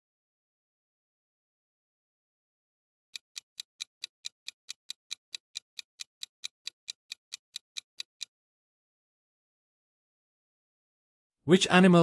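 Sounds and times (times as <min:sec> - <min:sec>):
clock ticking: 0:03.1 - 0:08.3.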